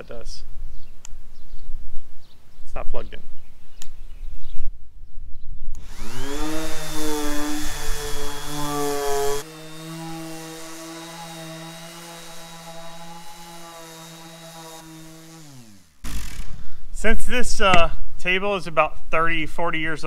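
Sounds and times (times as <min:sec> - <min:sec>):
orbit sander sanding wood: 0:05.8 - 0:16.5.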